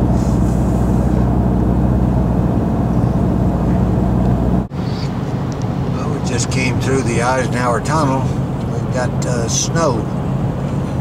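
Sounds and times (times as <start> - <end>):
low hum: 0.0 - 11.0
road and engine noise in car cabin: 0.0 - 11.0.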